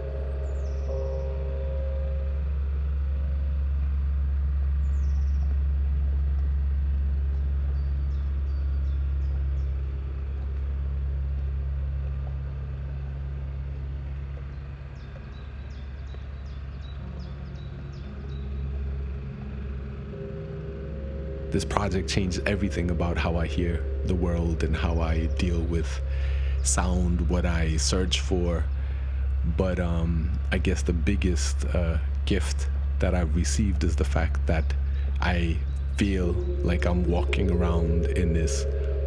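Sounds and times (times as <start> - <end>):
deep rumble: 0.0 - 39.0
held low tones: 0.0 - 39.0
faint high bird chirps: 34.6 - 39.0.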